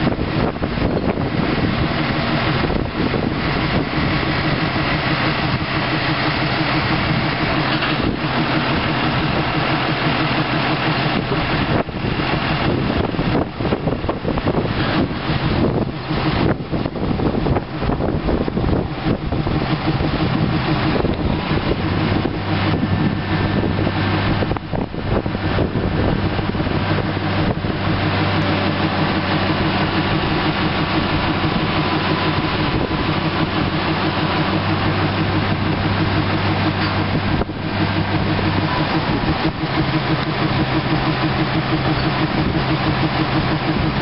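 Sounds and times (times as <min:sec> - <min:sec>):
diesel engine running: 0:00.0 - 0:44.0.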